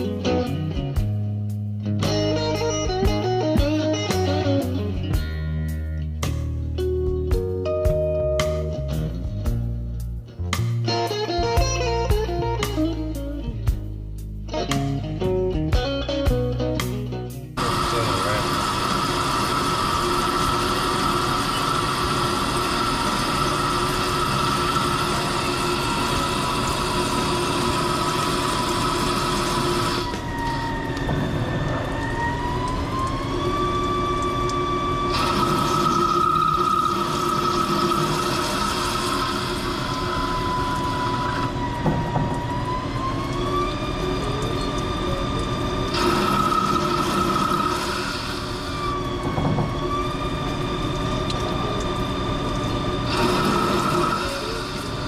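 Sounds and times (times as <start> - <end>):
hiss of cutting and coolant: 17.6 - 55.0
lathe motor whine: 17.6 - 55.0.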